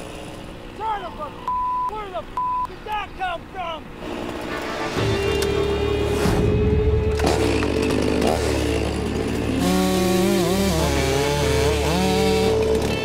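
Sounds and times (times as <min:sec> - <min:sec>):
chainsaw running and cutting: 0:00.0 - 0:01.4, 0:04.0 - 0:04.7, 0:06.9 - 0:13.0
background music: 0:04.0 - 0:13.0.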